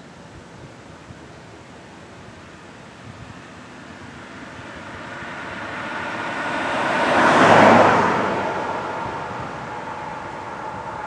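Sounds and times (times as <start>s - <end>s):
car passing by: 3.8s - 11.0s.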